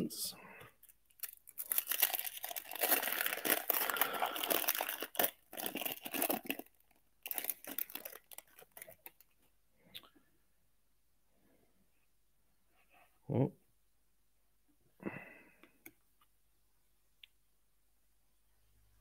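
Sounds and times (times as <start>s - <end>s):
foil wrapper crinkling and tearing: 0.8s - 9.3s.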